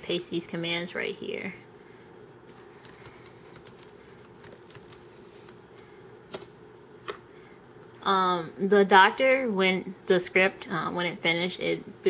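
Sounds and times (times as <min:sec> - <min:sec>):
faint steady hum: 0:00.0 - 0:12.0
computer keyboard and mouse clicks: 0:02.5 - 0:05.6, 0:06.3 - 0:07.2.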